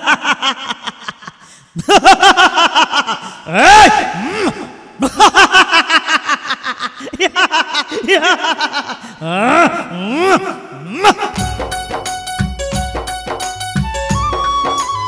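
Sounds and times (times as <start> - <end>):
person laughing loudly: 0.0 - 11.6.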